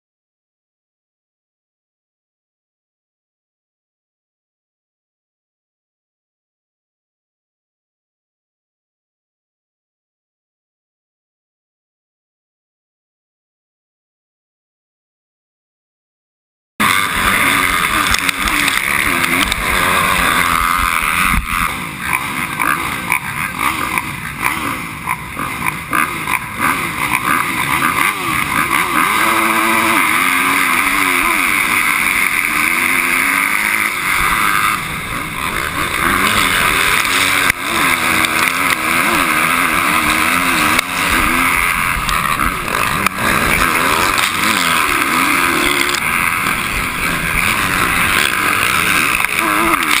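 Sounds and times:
dirt bike engines revving: 16.8 - 50.0.

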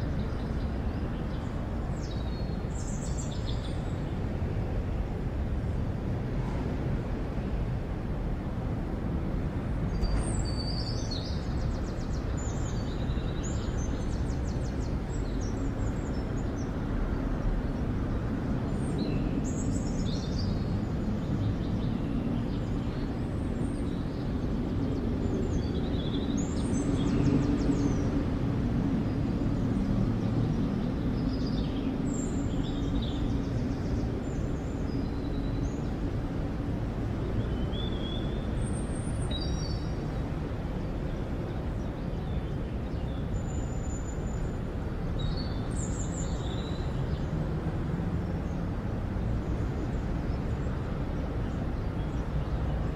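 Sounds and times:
small birds chirping: 37.2 - 47.3.

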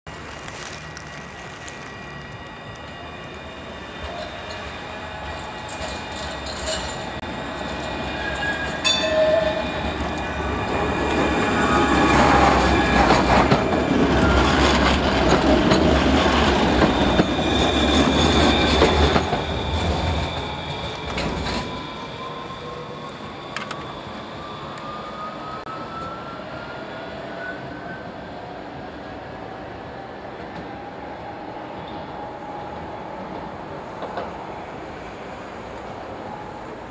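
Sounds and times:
tram wheels rumbling on rails: 0.1 - 36.9.

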